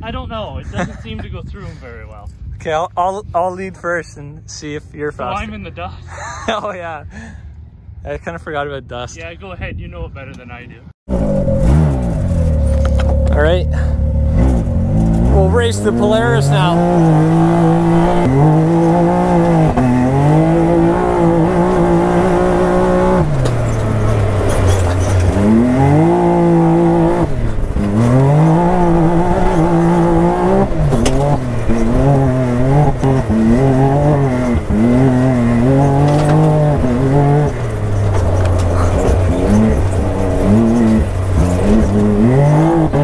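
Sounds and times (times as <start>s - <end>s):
engine revving: 11.1s - 43.0s.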